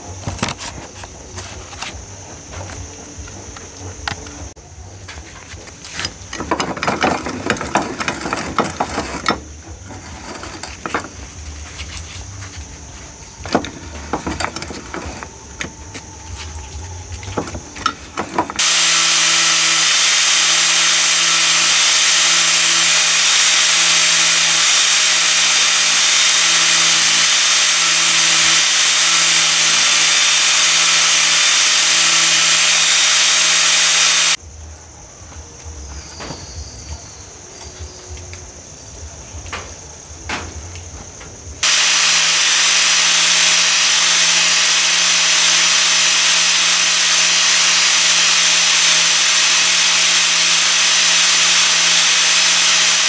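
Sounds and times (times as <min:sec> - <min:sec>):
metal parts knocking and clanking: 0:05.9 - 0:11.2
angle grinder grinding steel: 0:05.9 - 0:12.6, 0:13.4 - 0:16.6, 0:17.3 - 0:34.4, 0:41.6 - 0:53.0.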